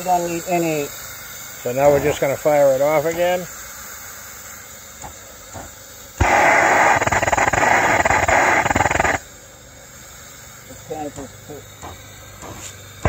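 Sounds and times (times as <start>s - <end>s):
gas torch sputtering: 0.0s - 13.0s
gas torch lighting pop: 5.0s - 9.2s.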